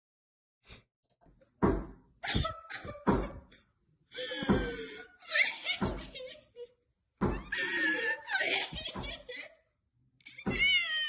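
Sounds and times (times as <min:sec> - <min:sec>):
loud knocks and bangs: 0:01.6 - 0:03.5.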